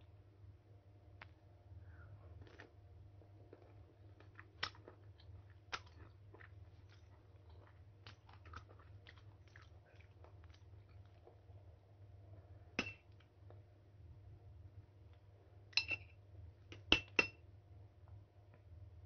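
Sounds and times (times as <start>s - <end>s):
crunchy mango chewing: 3.5s - 11.4s.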